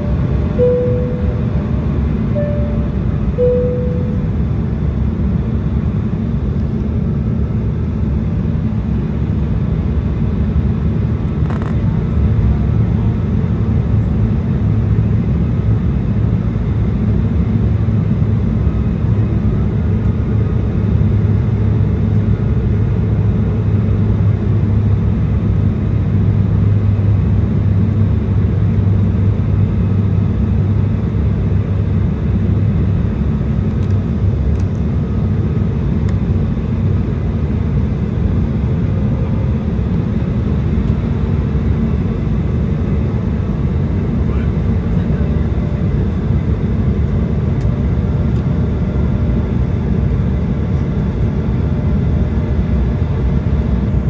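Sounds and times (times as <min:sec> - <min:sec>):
low hum: 0:00.0 - 0:06.8
jet engines droning: 0:00.0 - 0:54.0.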